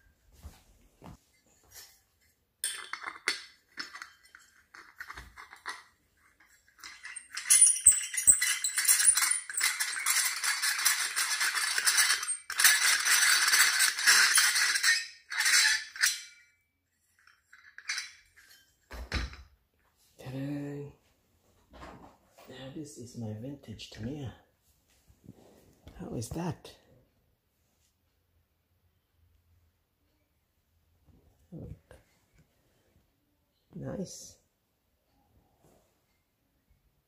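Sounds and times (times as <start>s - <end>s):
metal brackets clinking and rattling: 1.4s - 19.5s.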